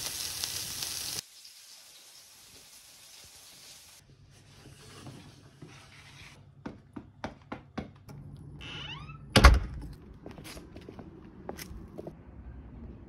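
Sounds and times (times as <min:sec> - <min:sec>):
door squeak: 0:08.6 - 0:09.7
door shutting with heavy thunk: 0:09.3 - 0:09.8.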